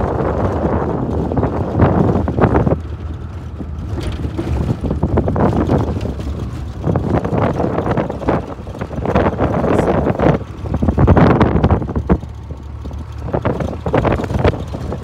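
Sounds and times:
engine and road rumble: 0.0s - 15.0s
wind buffeting microphone: 0.0s - 15.0s.

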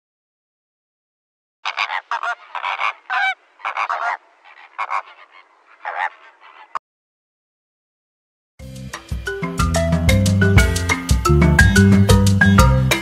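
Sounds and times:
flamingos honking: 1.6s - 6.8s.

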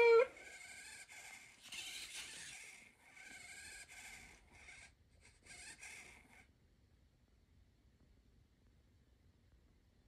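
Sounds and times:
small motors whirring: 0.0s - 6.5s.

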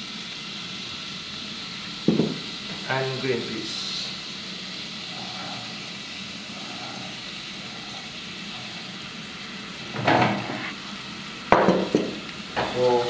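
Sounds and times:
vegetables sizzling in a pan: 0.0s - 13.0s.

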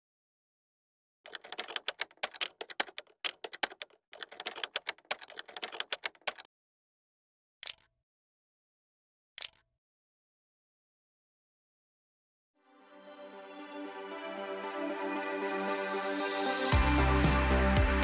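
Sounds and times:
typewriter key clicks: 1.3s - 6.5s, 7.6s - 7.9s, 9.4s - 9.6s.

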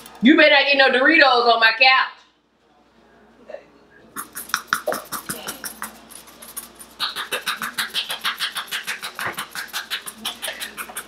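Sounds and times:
spice shaker rattling: 4.2s - 11.0s.

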